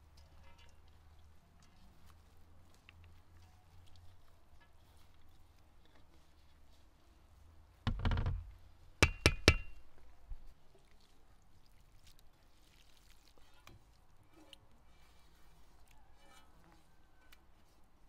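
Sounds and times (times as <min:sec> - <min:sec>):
sharp metallic knocks: 0:09.0 - 0:09.8.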